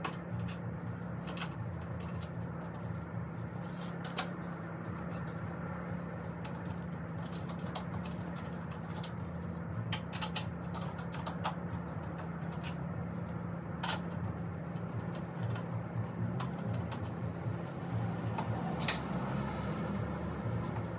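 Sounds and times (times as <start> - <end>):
steady low hum: 0.0 - 20.9
light clicks and taps of tools: 17.9 - 19.1.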